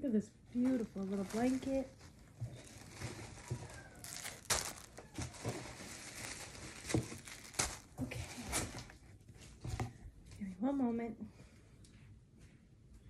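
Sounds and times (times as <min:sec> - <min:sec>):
plastic packaging crinkling: 0:00.5 - 0:09.1.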